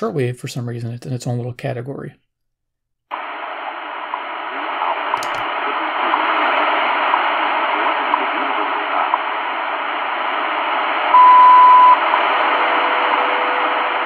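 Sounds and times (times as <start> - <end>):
radio static hiss: 3.1 - 14.0
loud steady beep: 11.1 - 12.2.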